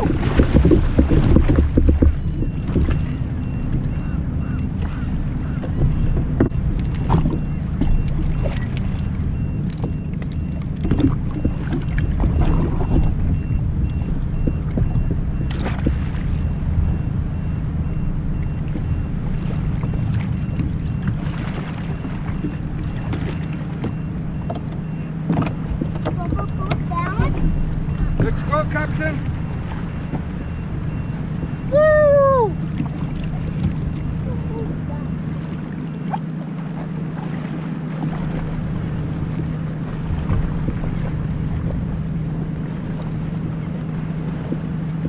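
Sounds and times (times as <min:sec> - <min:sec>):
watercraft engine and wind rumble: 0:00.0 - 0:45.0
faint pulsing high tone: 0:01.9 - 0:36.5.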